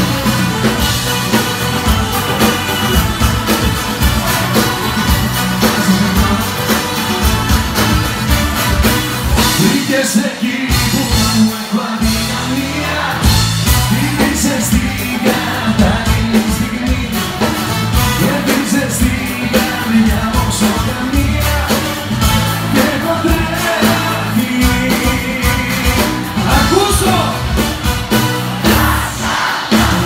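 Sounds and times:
bass line: 0:00.0 - 0:10.0, 0:10.7 - 0:30.0
live pop band playing: 0:00.0 - 0:30.0
steady drum beat: 0:00.0 - 0:30.0
man singing into microphone: 0:09.6 - 0:13.2, 0:13.9 - 0:17.4, 0:18.2 - 0:22.0, 0:22.6 - 0:27.4.

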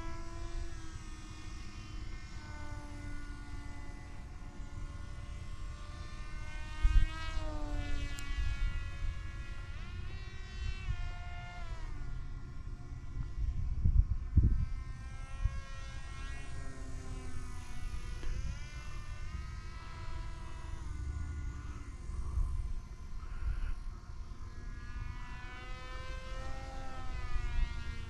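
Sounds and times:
model plane motor whining: 0:00.0 - 0:28.0
wind buffeting microphone: 0:13.1 - 0:15.8.

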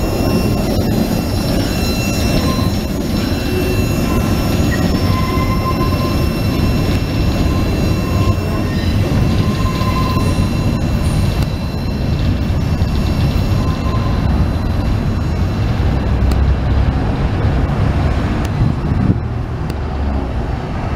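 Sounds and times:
thin wheel squeals: 0:00.0 - 0:15.6
freight train rumbling past: 0:00.0 - 0:20.9.

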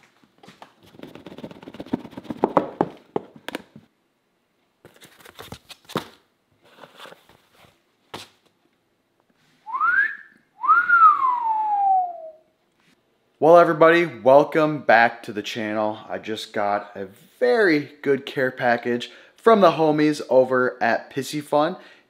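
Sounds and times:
cardboard packaging rustling: 0:04.8 - 0:08.5
person wolf whistling: 0:09.7 - 0:12.5.

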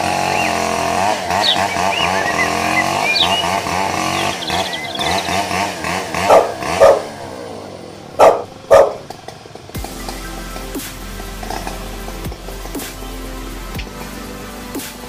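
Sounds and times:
chainsaw engine running: 0:00.0 - 0:15.0
dog barking: 0:06.2 - 0:07.1, 0:08.2 - 0:09.1.

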